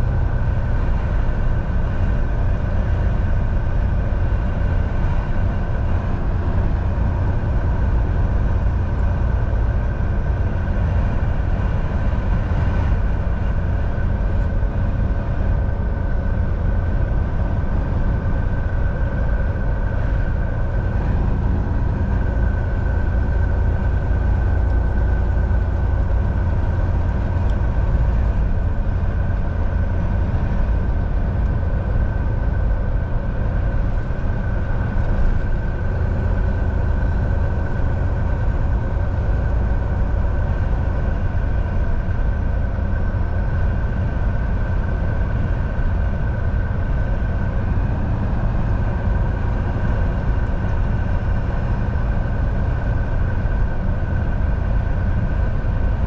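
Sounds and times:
steady high whine: 0.0s - 56.0s
truck engine and road rumble: 0.0s - 56.0s.

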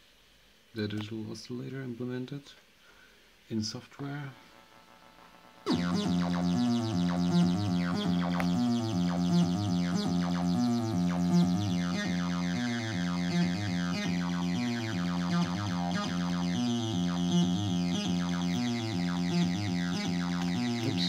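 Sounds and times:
squelchy synthesizer bassline: 4.4s - 21.0s.

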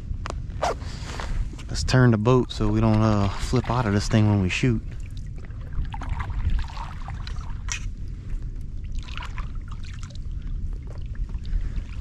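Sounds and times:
low steady rumble: 0.0s - 12.0s
paddle splashing through water: 4.9s - 7.9s.

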